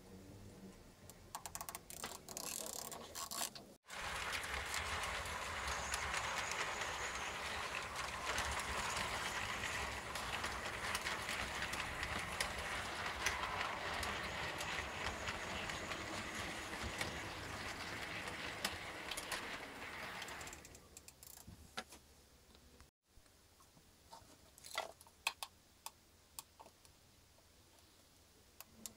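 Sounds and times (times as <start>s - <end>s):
model train rattling on track: 3.9s - 20.8s.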